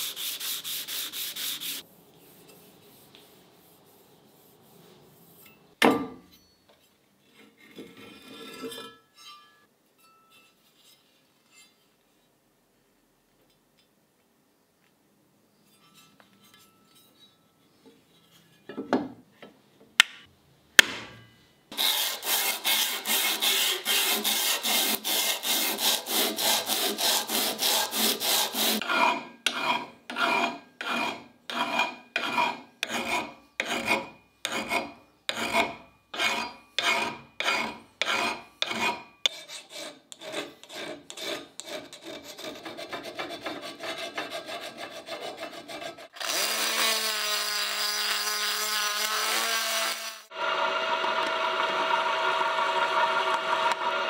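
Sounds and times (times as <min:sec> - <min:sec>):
file rasping on steel blade: 0:00.0 - 0:01.8, 0:21.7 - 0:47.0.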